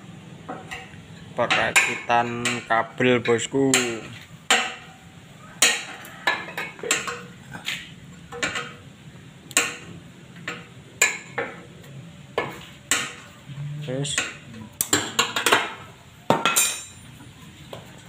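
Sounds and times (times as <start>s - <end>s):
metal tools clinking on steel: 16.4s - 17.3s.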